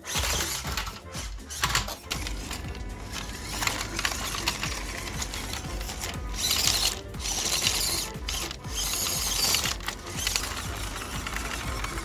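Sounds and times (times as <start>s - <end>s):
toy truck motor whirring: 0.0s - 12.0s.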